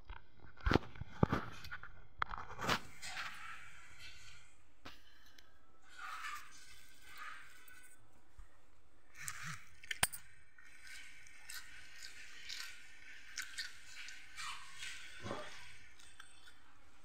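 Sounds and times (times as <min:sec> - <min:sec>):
chewing crunchy fried food: 0:09.1 - 0:17.0.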